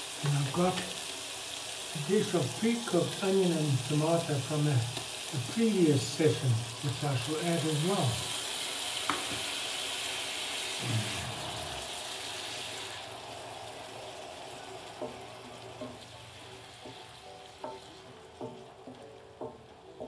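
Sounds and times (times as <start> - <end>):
food sizzling in a frying pan: 0.0 - 20.0
wooden spoon knocking against pan: 17.6 - 20.0.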